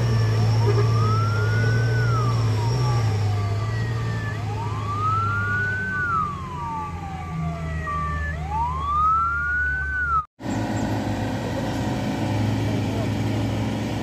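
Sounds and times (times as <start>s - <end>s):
wailing siren: 0.0s - 10.3s
vehicle engine: 0.0s - 14.0s
heavy truck engine running: 10.4s - 14.0s.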